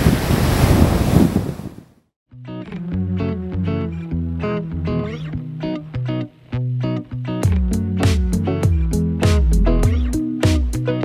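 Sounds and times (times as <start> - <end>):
music with drums bass and guitar: 2.4 - 11.0.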